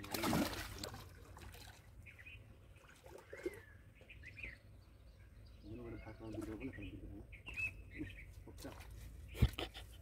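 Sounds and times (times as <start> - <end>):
fish splashing in water: 0.0 - 1.9
bird chirps: 2.0 - 8.5.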